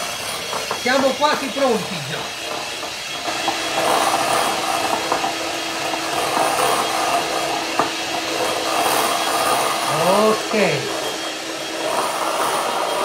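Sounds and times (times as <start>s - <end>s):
electric hand mixer whipping cream: 0.0s - 13.0s.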